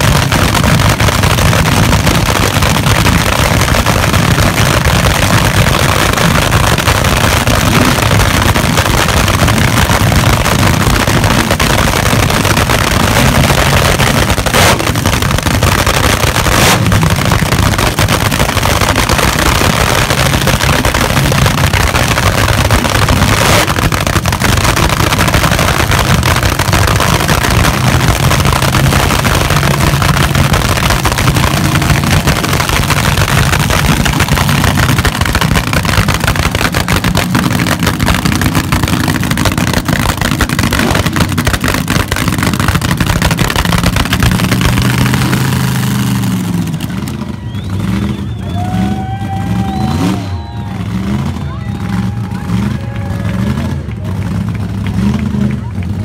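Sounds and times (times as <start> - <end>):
drag racing engines rumbling: 0.0 - 56.0.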